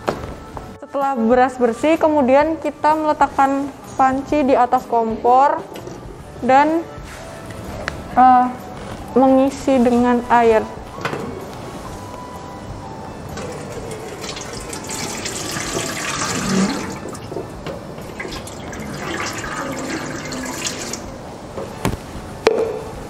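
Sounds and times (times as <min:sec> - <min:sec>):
water poured into metal pot: 0:13.4 - 0:17.4, 0:18.0 - 0:21.1.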